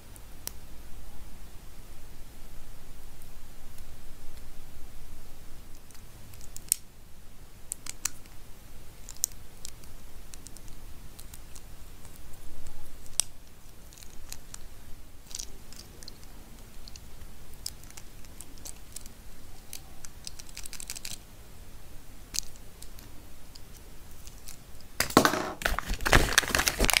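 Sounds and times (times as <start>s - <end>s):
small plastic clicks: 7.7s - 8.4s, 9.0s - 12.3s, 15.3s - 21.2s, 22.3s - 27.0s.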